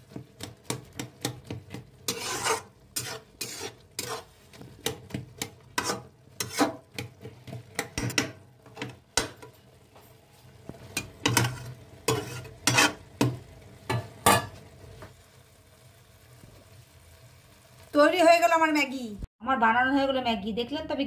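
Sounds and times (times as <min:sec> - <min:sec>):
spatula scraping metal pan: 0:00.4 - 0:09.5, 0:11.0 - 0:13.4.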